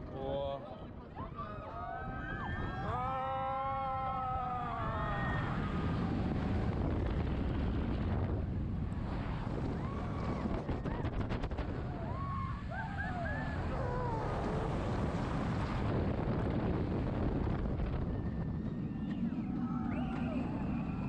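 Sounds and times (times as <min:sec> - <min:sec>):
riders shrieking and yelling: 0:01.4 - 0:06.2, 0:09.7 - 0:15.2
wind on microphone: 0:01.5 - 0:21.0
roller coaster clicks: 0:09.5 - 0:12.2, 0:19.0 - 0:21.0.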